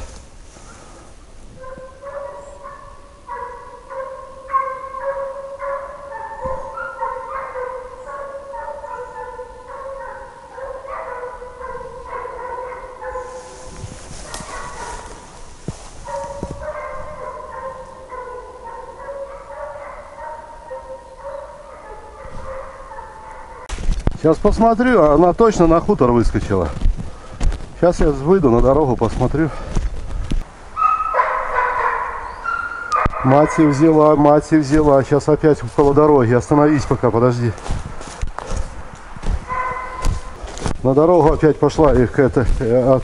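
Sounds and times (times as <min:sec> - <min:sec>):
hounds baying: 0:01.6 - 0:15.4, 0:16.0 - 0:23.7, 0:30.8 - 0:37.7, 0:38.4 - 0:43.0.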